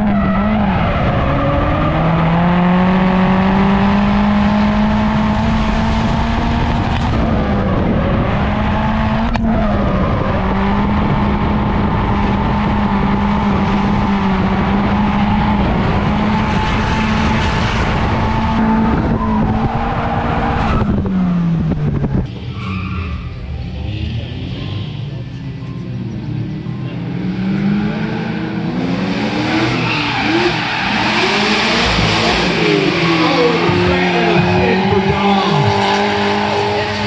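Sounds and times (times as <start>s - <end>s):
car engine at high revs: 0.0s - 22.5s, 23.3s - 37.0s.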